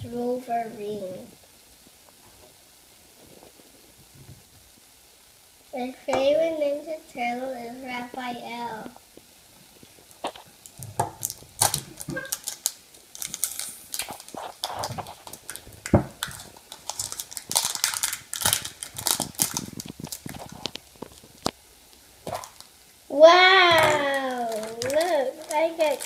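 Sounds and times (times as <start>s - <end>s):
plastic wrapping crinkling: 9.7s - 26.0s.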